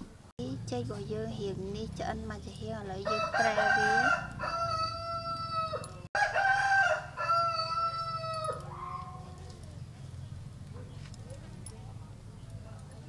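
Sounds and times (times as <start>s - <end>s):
roosters crowing: 3.0s - 10.7s.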